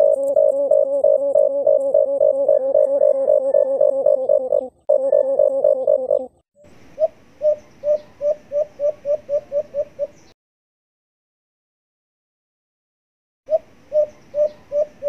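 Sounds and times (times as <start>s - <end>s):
recorded dove cooing: 0.0s - 10.3s, 13.5s - 15.0s.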